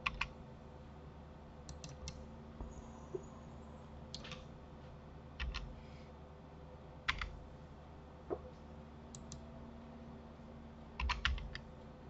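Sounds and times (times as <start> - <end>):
keyboard and mouse clicks: 0.0 - 0.3, 1.7 - 2.2, 4.1 - 4.4, 5.4 - 5.7, 7.1 - 7.4, 9.1 - 9.4, 11.0 - 11.7.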